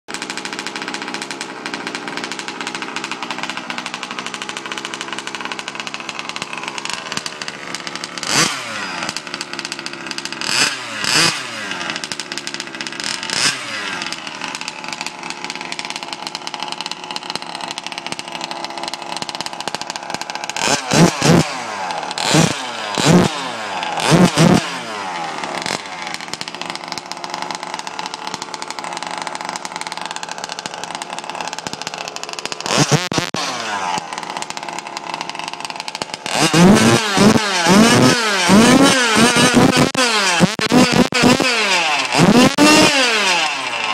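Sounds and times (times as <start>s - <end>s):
small two-stroke engine revving: 0.1s - 43.9s.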